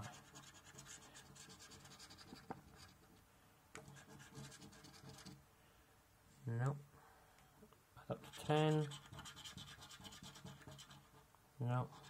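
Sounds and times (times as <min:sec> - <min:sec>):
coin scratching scratchcard: 0:00.1 - 0:03.0, 0:03.8 - 0:05.4, 0:08.2 - 0:11.2.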